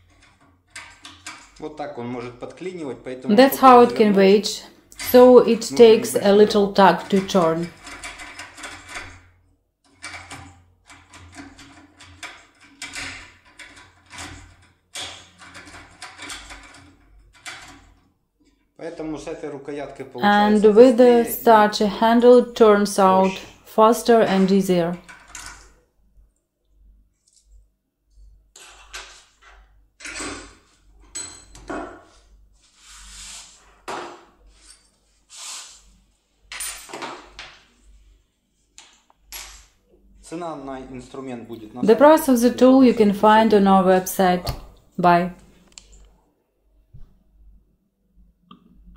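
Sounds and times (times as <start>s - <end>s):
metal clinks and knocks: 7.0s - 9.3s, 9.9s - 18.1s, 28.6s - 32.1s, 36.5s - 37.6s
metal scrape: 32.0s - 33.9s, 34.5s - 36.0s.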